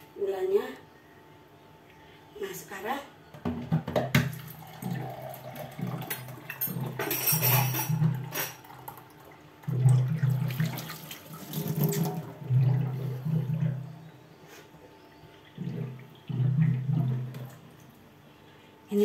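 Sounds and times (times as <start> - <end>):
water running from a tap: 4.2 - 9.1, 9.7 - 13.9.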